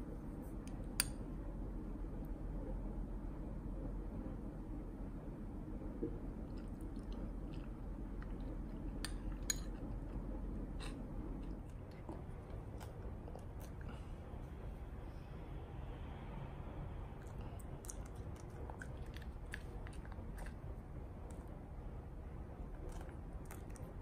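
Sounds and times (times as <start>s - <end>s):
chewing and crunching: 6.3s - 14.2s, 17.1s - 21.6s, 22.5s - 24.0s.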